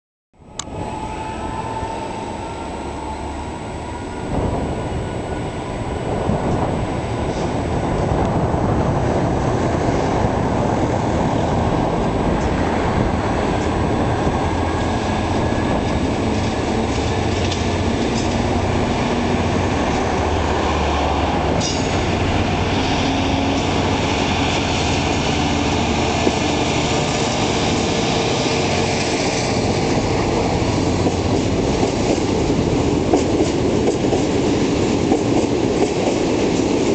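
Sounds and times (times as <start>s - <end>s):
diesel locomotive engine running: 0.4s - 36.8s
train wheels clattering over track: 13.4s - 20.0s, 21.5s - 36.9s.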